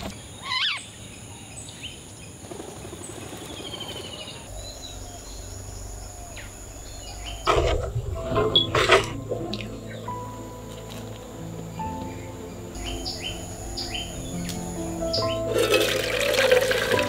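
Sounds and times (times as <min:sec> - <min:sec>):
birds chirping: 0:00.0 - 0:17.0
insect drone: 0:00.0 - 0:17.0.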